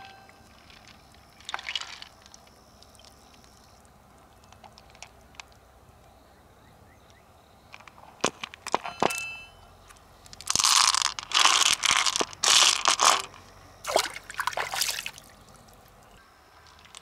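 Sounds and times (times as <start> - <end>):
small hard objects clinking: 0.0 - 3.4, 10.3 - 13.4.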